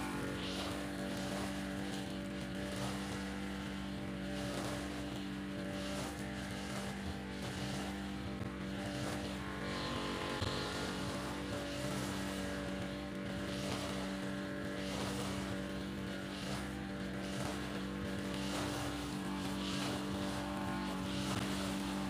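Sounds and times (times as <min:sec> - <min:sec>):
brush cutter cutting grass: 0:00.0 - 0:22.0.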